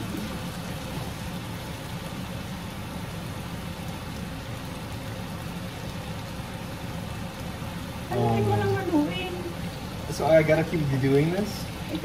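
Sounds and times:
chicken sizzling in frying pan: 0.0 - 12.0.

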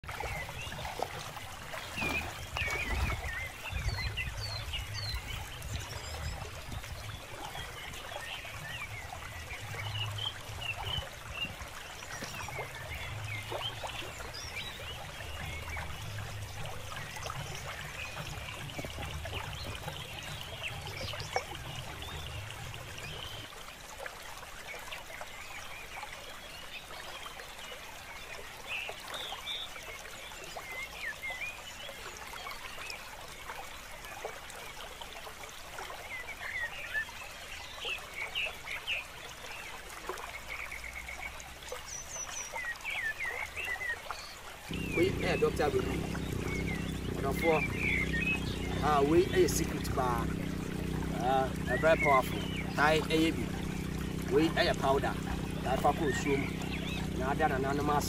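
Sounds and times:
water sloshing from wading: 0.0 - 58.0.

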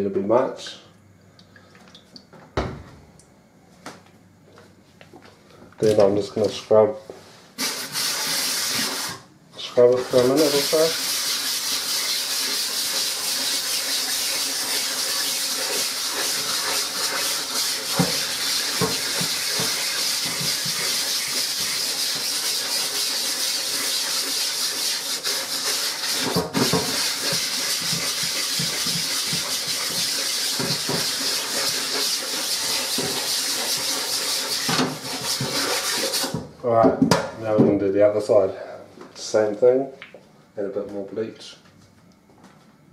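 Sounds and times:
brush scrubbing mesh: 9.8 - 36.4.

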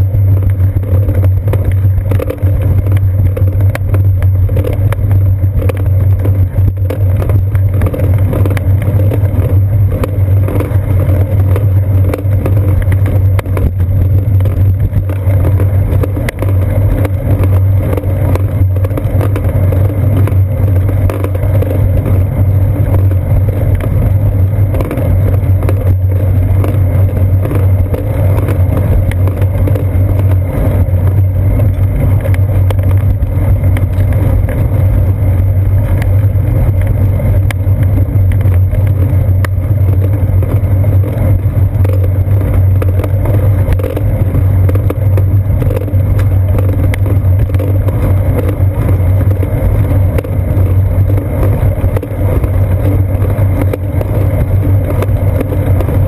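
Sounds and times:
bicycle rolling on concrete: 0.0 - 56.0.

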